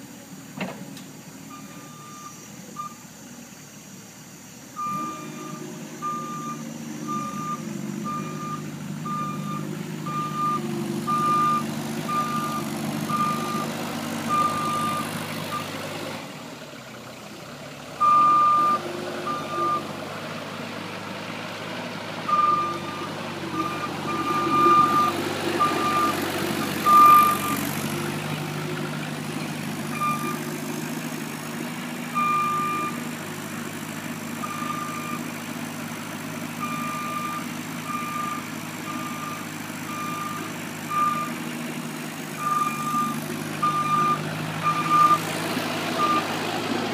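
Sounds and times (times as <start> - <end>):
vehicle engine running: 1.1 - 46.9
vehicle backup alarm beeping: 1.4 - 3.1, 4.7 - 15.8, 18.0 - 20.0, 22.2 - 28.2, 29.3 - 31.1, 32.0 - 33.2, 34.2 - 46.4.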